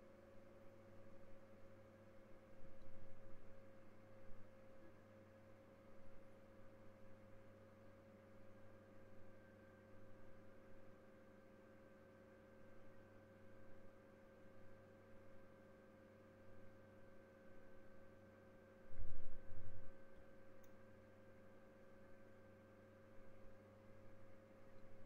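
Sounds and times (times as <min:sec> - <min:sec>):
faint electrical hum: 0:00.0 - 0:25.0.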